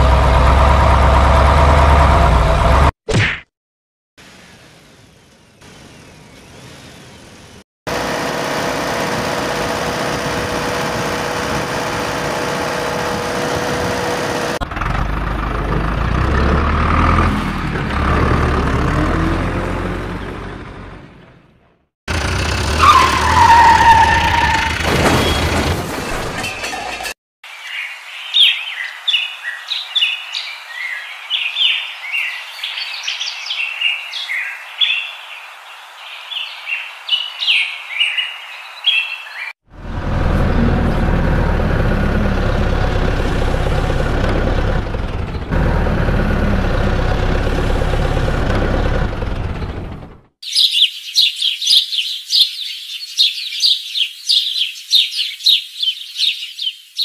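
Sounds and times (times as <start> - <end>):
heavy vehicle engine: 0.0 - 3.0, 7.9 - 27.2, 39.6 - 50.4
birds chirping: 27.5 - 39.6, 50.4 - 57.0.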